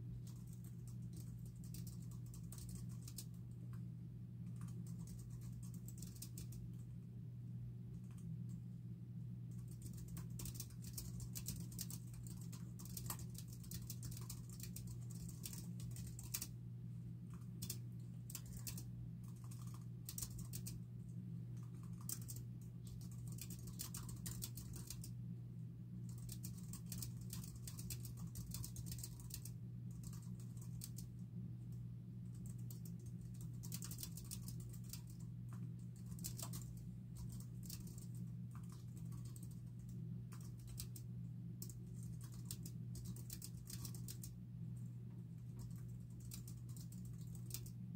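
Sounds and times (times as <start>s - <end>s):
steady low hum: 0.0s - 47.9s
computer keyboard typing: 0.2s - 3.4s, 4.4s - 6.6s, 9.5s - 16.6s, 17.3s - 20.8s, 21.6s - 25.2s, 26.1s - 31.1s, 32.3s - 44.4s, 45.4s - 47.8s.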